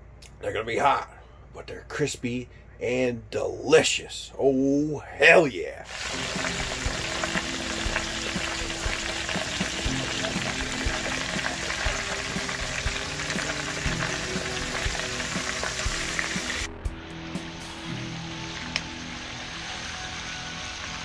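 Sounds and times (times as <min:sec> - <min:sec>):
oil sizzling while deep-frying: 0:05.9 - 0:16.7, 0:18.4 - 0:21.0.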